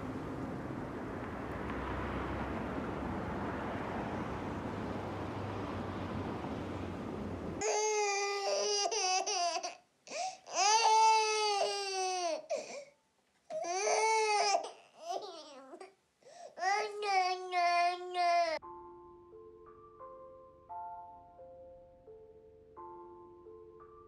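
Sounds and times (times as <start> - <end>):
baby crying: 7.6 - 12.9, 13.5 - 15.9, 16.6 - 18.6.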